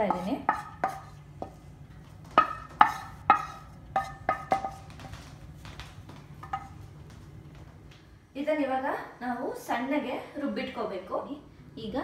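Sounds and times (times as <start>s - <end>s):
spatula knocking on metal jar: 2.4s - 4.9s.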